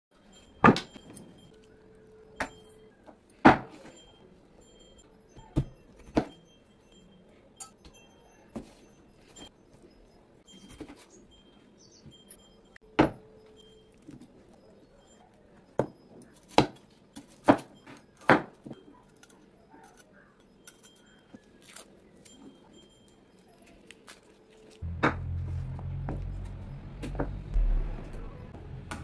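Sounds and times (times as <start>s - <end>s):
dry onion skin crackling: 21.0s - 26.4s.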